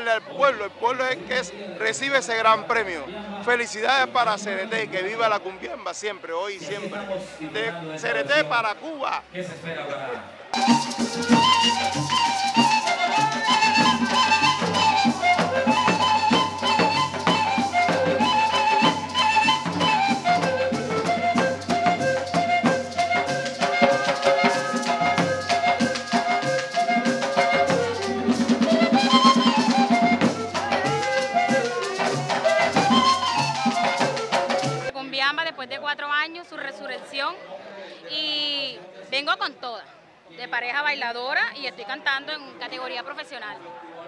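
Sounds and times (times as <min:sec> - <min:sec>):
cumbia music with drums and rattles: 0:00.0 - 0:06.8, 0:10.5 - 0:37.2.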